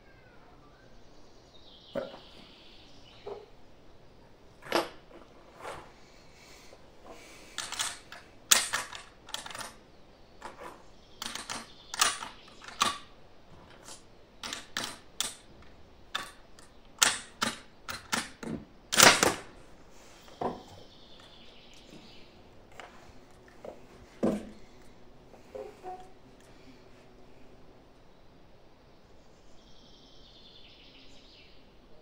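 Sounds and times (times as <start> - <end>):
rifle bolt clicks and knocks: 7.6 - 9.8.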